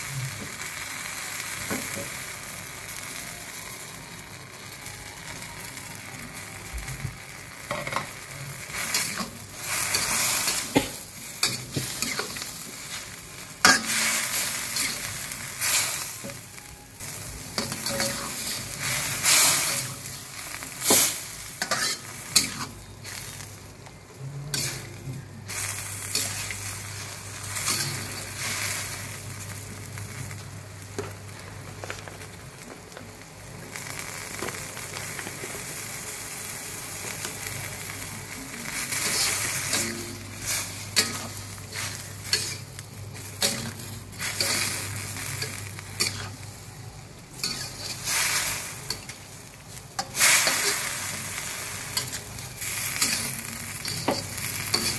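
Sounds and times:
food sizzling in a wok: 0.0s - 54.9s
metal spatula scraping a wok: 7.7s - 16.3s, 17.6s - 23.5s, 24.5s - 29.2s, 38.7s - 46.4s, 47.3s - 49.2s, 50.0s - 54.9s.

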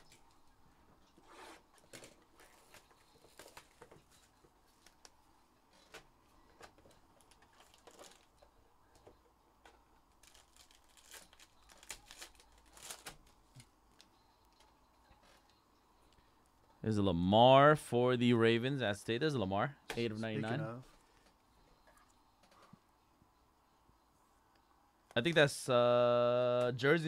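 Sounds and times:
wrapper crinkling and tearing: 7.2s - 8.4s, 10.1s - 13.4s.

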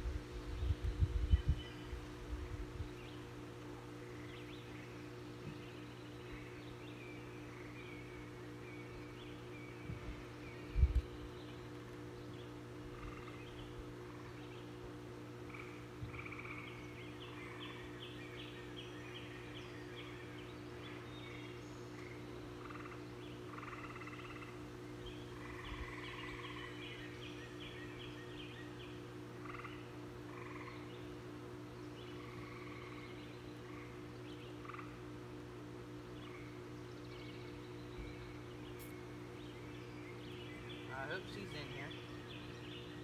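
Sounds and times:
steady low hum: 0.0s - 43.0s
rapidly repeated animal calls: 12.6s - 31.3s, 31.9s - 35.4s.

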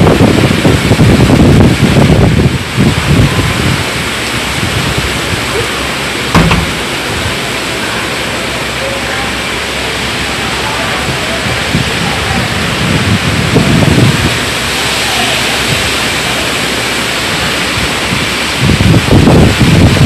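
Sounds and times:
wind gusts buffeting microphone: 0.0s - 7.9s, 9.7s - 20.0s
heavy rain pouring: 0.0s - 20.0s
sharp knock: 6.3s - 6.9s.

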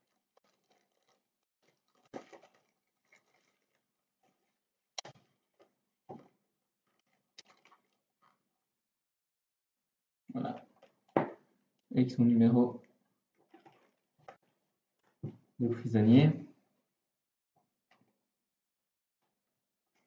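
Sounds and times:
faint plastic bag crinkles: 0.0s - 8.4s, 12.7s - 15.2s.

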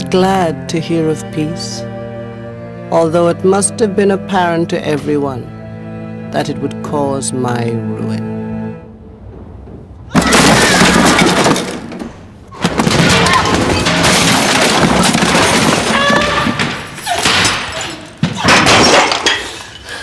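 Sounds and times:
glass bottles smashing: 10.1s - 12.0s, 12.6s - 20.0s.

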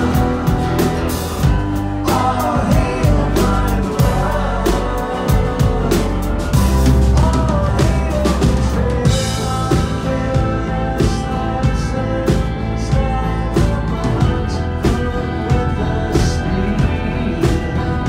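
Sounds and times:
live rock band playing: 0.0s - 18.0s.

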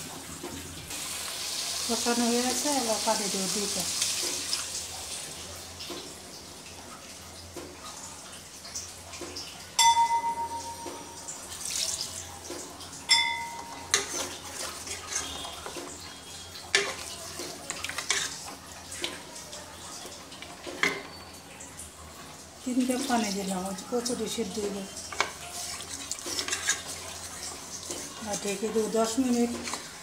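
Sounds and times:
wooden spatula scraping metal pot: 13.9s - 19.2s, 25.1s - 30.0s.

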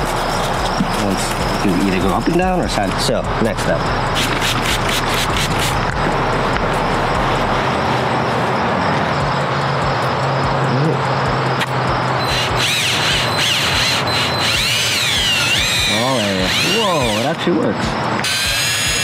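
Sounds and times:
cordless drill motor whine: 12.2s - 17.4s, 18.2s - 19.0s.

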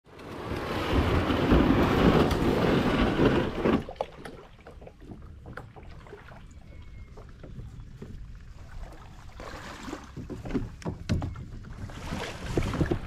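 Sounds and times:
water splashing and lapping: 0.1s - 13.0s
wind noise on microphone: 10.1s - 13.0s.

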